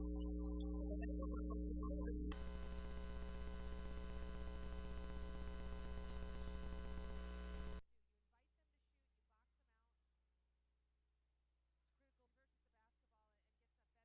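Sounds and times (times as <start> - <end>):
electrical mains hum: 2.3 - 7.8
static hiss: 2.3 - 7.8.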